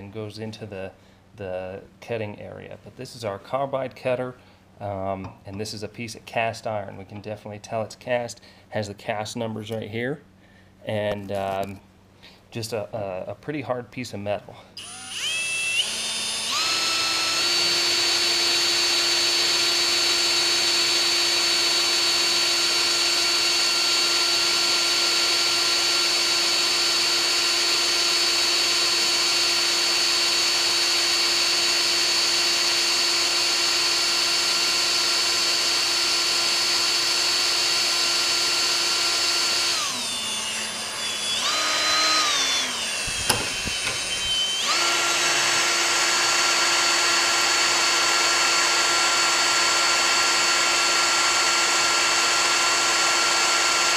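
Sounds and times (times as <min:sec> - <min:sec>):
hand drill motor whining: 0:14.8 - 0:53.9.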